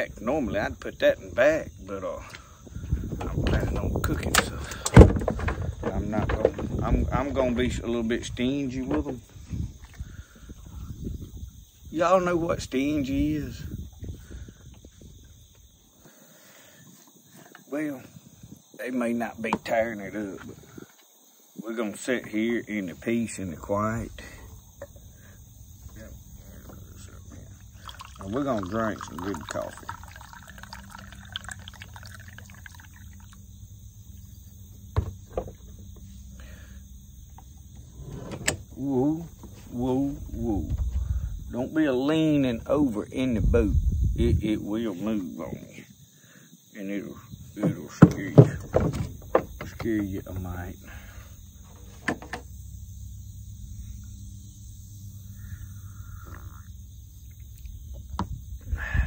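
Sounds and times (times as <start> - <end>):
insects droning: 0.0 - 59.0
coffee pouring into a cup: 27.3 - 33.4
low rumble: 43.1 - 44.6.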